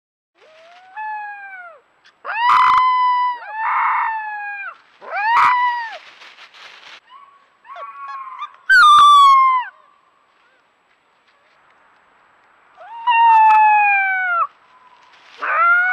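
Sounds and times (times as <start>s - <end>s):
wolf pup howling: 0.4s - 6.0s, 7.0s - 9.8s, 12.8s - 15.9s.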